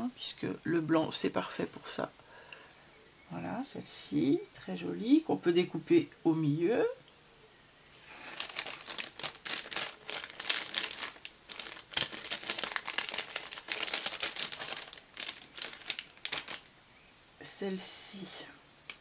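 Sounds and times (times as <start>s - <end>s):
plastic packaging crinkling: 8.0s - 16.7s.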